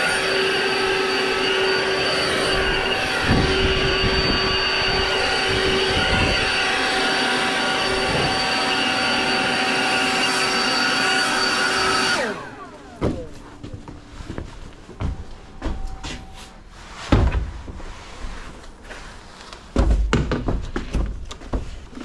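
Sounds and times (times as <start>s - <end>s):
leaf blower running: 0.0s - 16.5s.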